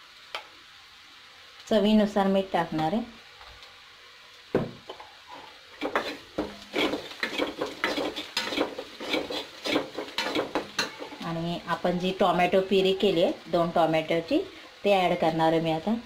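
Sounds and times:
spoon scraping in a pan: 4.9 - 11.4.

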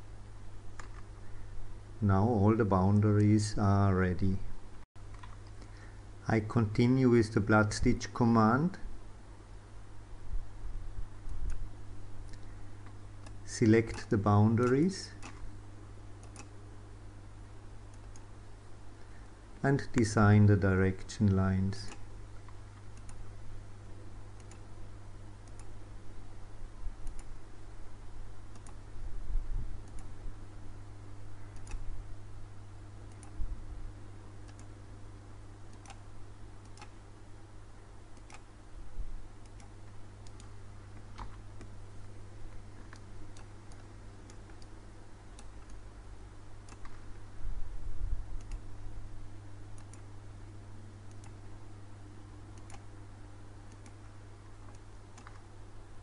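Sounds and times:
steady low hum: 0.0 - 56.0
computer mouse clicks: 0.8 - 1.1, 5.1 - 5.7, 11.3 - 11.6, 12.3 - 15.5, 16.2 - 16.6, 17.9 - 18.3, 19.8 - 20.2, 21.8 - 23.2, 24.3 - 24.7, 25.4 - 25.8, 27.0 - 27.4, 28.5 - 28.8, 29.8 - 30.1, 31.5 - 31.9, 33.1 - 33.4, 34.4 - 34.8, 35.7 - 37.0, 38.2 - 38.5, 39.4 - 41.7, 42.8 - 45.8, 46.6 - 47.0, 48.4 - 48.7, 49.7 - 50.1, 51.1 - 51.4, 52.6 - 52.9, 53.7 - 54.0, 54.6 - 55.5.

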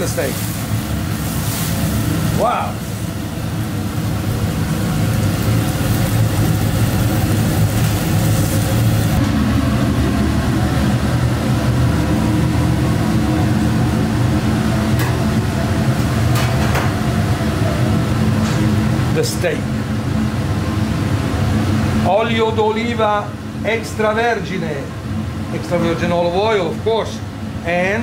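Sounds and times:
steak sizzling on grill: 0.0 - 9.2
kitchen ventilation drone: 0.0 - 28.0.

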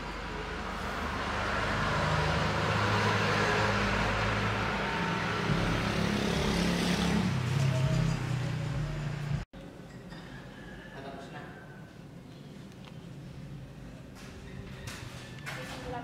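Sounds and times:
motor vehicle engine rumble: 0.0 - 9.5.

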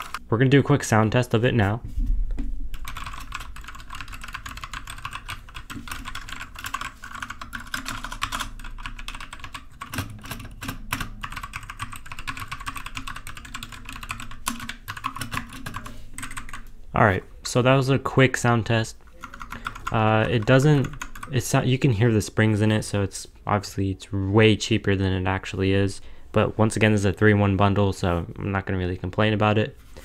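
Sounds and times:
mechanical keyboard typing: 0.0 - 0.2, 2.8 - 16.7, 19.1 - 21.3
low thump: 1.8 - 2.8.

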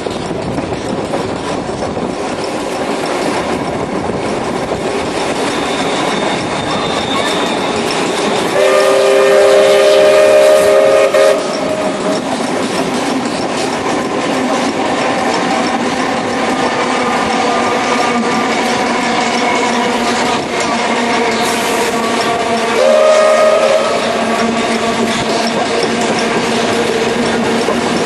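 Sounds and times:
clickety-clack over rail joints: 0.0 - 28.0
train wheels and wind rushing: 0.0 - 28.0
train chord horn: 8.4 - 12.2, 20.6 - 25.2.

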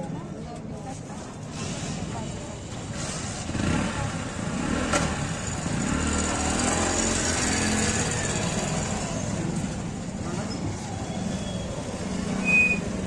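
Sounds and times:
street market noise: 0.0 - 13.0
small motorcycle engine running: 3.4 - 9.4.

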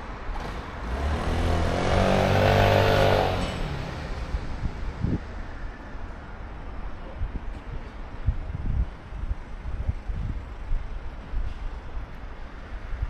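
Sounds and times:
street noise: 0.0 - 13.0
vehicle passing close by: 0.4 - 5.2.

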